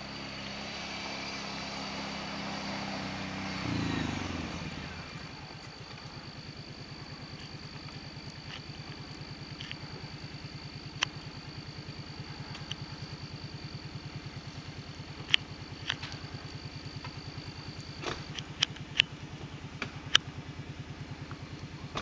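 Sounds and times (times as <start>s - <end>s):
atv engine running: 0.0s - 22.0s
sharp clicks: 15.0s - 19.2s.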